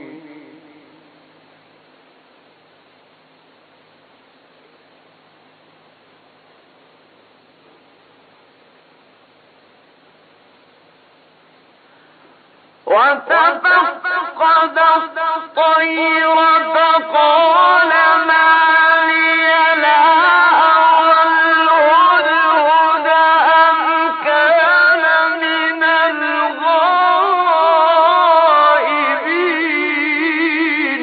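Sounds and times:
man chanting solo: 12.8s - 31.0s.

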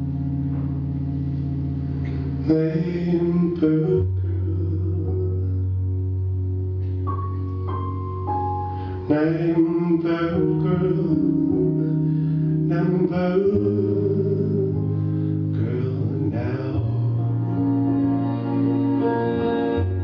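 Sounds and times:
slow instrumental music: 0.0s - 20.0s
person singing: 2.0s - 6.0s, 8.8s - 20.0s.

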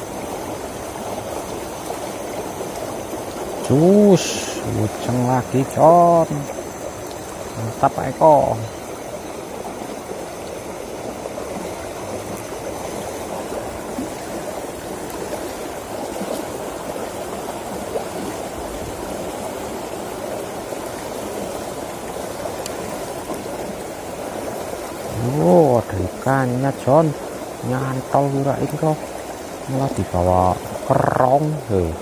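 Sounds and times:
water rushing in a ditch: 0.0s - 32.0s.

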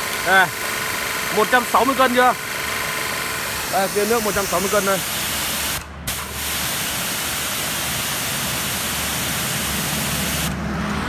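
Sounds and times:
pressure washer water jet hissing: 0.0s - 10.6s
electric motor and pump hum: 0.0s - 11.0s.

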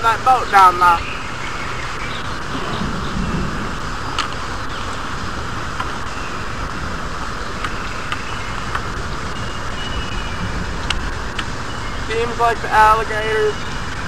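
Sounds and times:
wind buffeting microphone: 0.0s - 14.0s
faint clicks: 10.8s - 11.6s.

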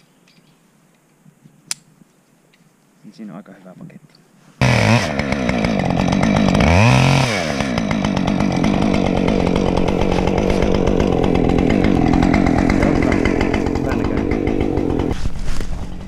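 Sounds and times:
chainsaw cutting wood: 4.6s - 16.0s.

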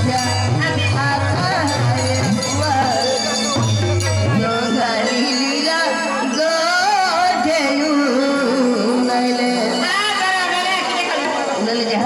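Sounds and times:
drum accompaniment: 0.0s - 12.0s
person singing ornamented melody: 0.0s - 12.0s.

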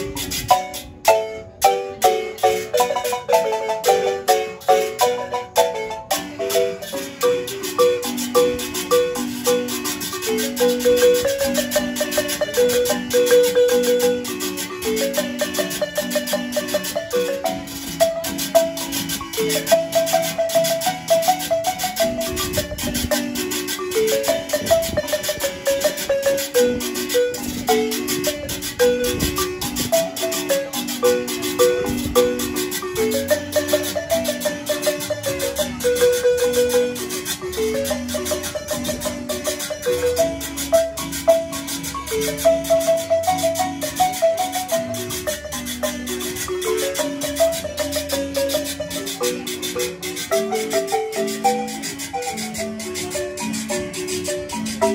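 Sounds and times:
marimba melody: 0.0s - 54.9s
metal scraper rhythm: 0.0s - 54.9s.

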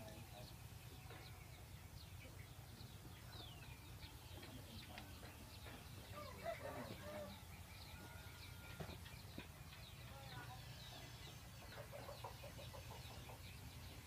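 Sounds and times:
small birds chirping: 0.0s - 14.0s
chicken clucking: 10.9s - 14.0s.

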